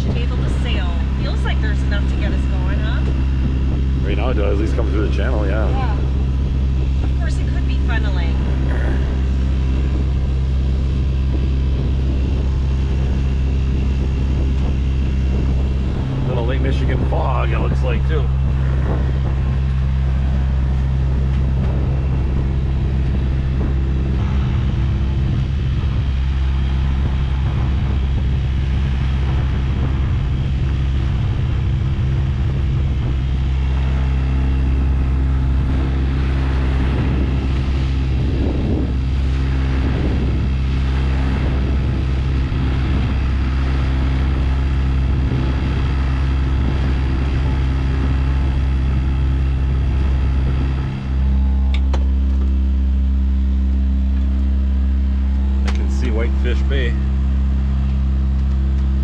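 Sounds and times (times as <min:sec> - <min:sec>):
boat motor humming: 0:00.0 - 0:59.0.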